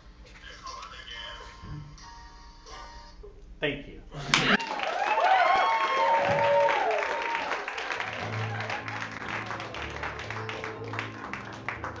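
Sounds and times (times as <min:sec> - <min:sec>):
audience applauding: 0:04.3 - 0:12.0
voices cheering: 0:04.6 - 0:11.7.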